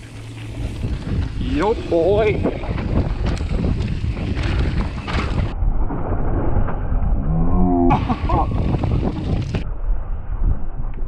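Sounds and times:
bike knocking and rattling: 0.0 - 5.6, 8.3 - 9.6
wind and trail rumble: 0.0 - 11.0.

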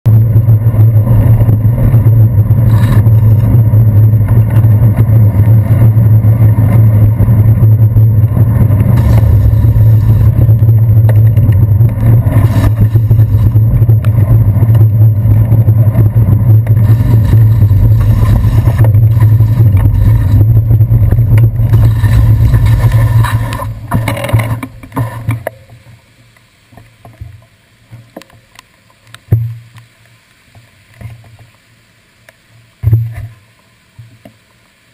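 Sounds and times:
wind on camera: 0.0 - 25.8
bicycle riding on wet streets: 0.1 - 34.9
faint ticks: 22.7 - 31.6, 32.2 - 34.6.

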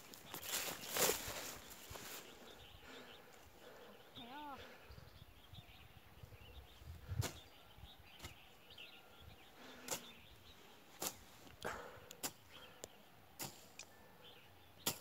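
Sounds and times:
hand tool chopping grass: 11.0 - 11.2, 13.4 - 13.7.

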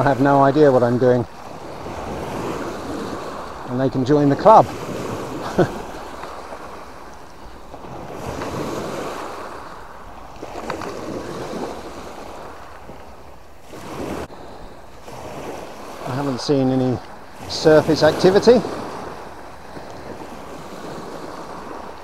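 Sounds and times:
waves washing up a pebble beach: 7.7 - 13.0, 13.6 - 22.0.

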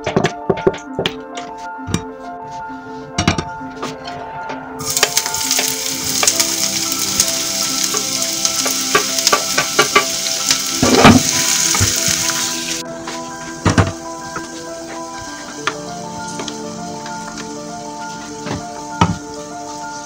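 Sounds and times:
soft background music: 0.0 - 20.0
wooden spoon stirring: 4.8 - 6.8
onion sizzling in frying pan: 4.8 - 20.0.

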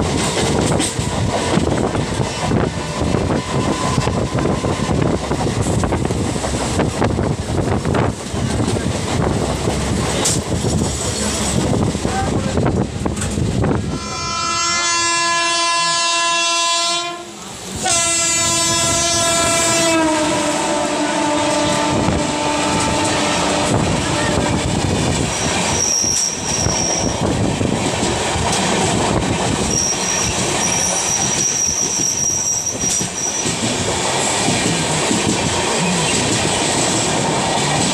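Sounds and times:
train coaches rumbling and clacking: 0.0 - 37.9
locomotive horn blasts: 13.9 - 24.7
high wheel squeal: 25.3 - 27.3, 29.6 - 33.6.

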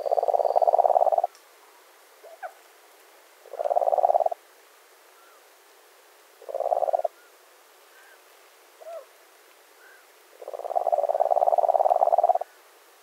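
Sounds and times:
nightjar churring trill: 0.0 - 1.3.

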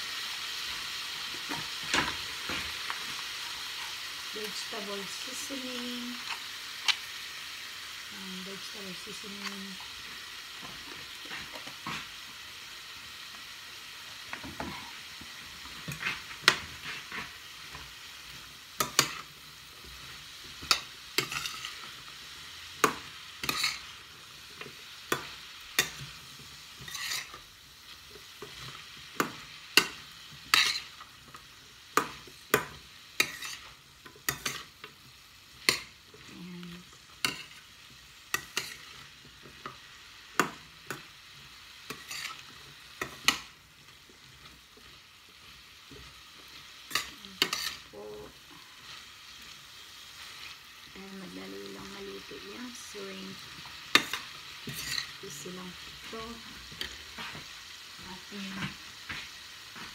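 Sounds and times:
food sizzling in a frying pan: 0.0 - 59.9.

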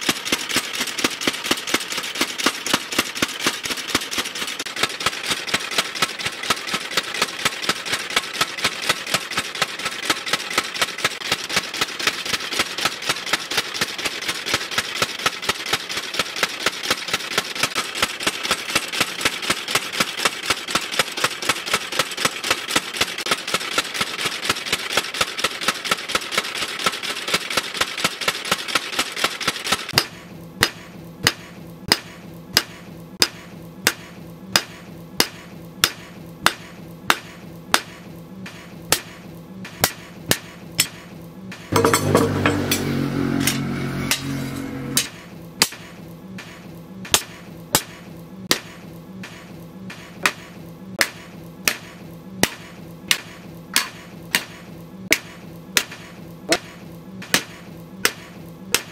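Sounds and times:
power hammer pounding steel: 0.0 - 41.1, 41.7 - 58.9
mechanical din: 41.7 - 45.2.

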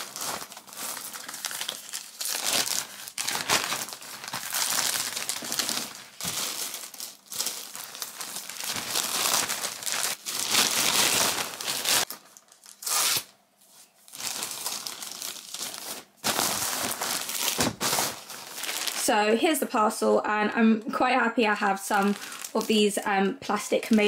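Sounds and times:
plastic bag crinkling: 0.0 - 13.2, 14.0 - 19.1, 21.8 - 23.0.

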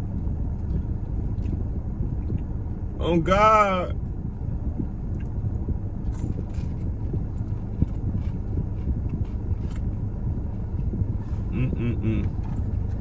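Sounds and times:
steady low rumble: 0.0 - 13.0
crisp chewing crunches: 6.0 - 10.0.

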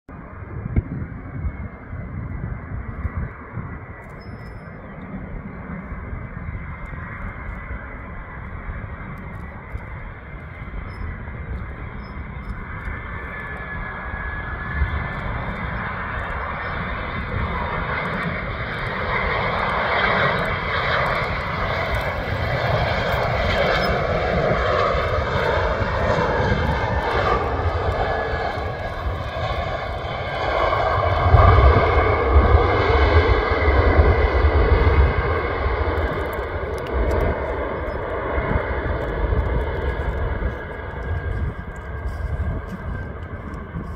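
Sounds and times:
jet engine rumble and whine: 0.1 - 43.9.

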